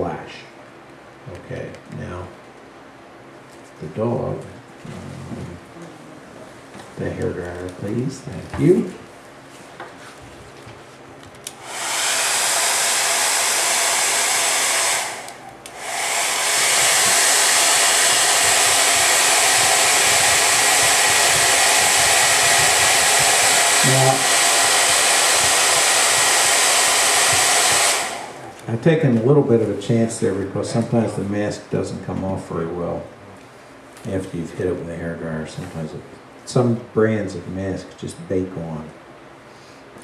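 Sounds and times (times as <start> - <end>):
hair dryer blowing: 11.5 - 28.6.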